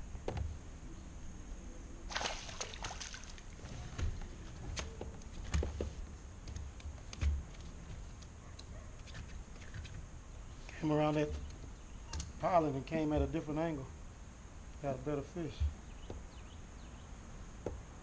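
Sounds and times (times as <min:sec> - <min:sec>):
water splashing and sloshing: 0:02.1 - 0:06.1.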